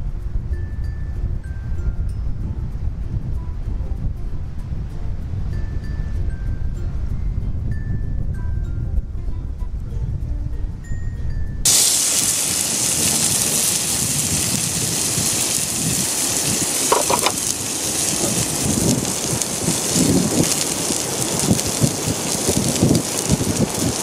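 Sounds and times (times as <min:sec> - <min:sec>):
fire crackling: 0:11.6 - 0:24.0
steak sizzling on a griddle: 0:11.7 - 0:24.0.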